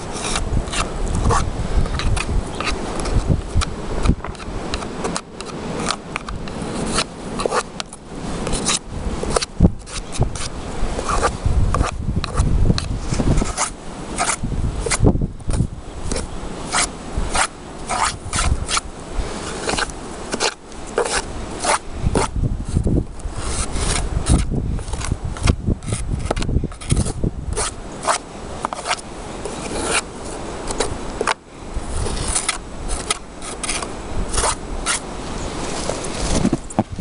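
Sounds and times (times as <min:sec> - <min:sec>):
stick scraping on wood: 0:00.0 - 0:37.0.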